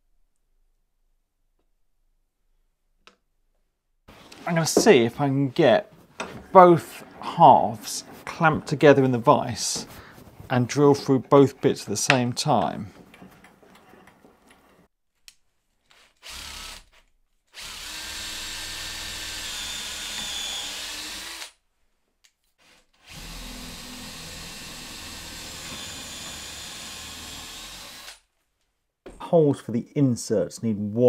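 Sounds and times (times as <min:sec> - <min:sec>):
cordless drill boring through wood: 0:15.9 - 0:21.6, 0:22.6 - 0:28.2.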